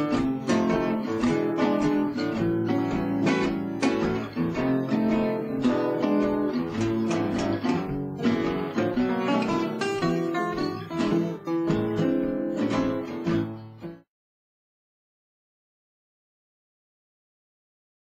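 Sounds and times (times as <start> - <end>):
jazzy guitar music: 0.0 - 14.1.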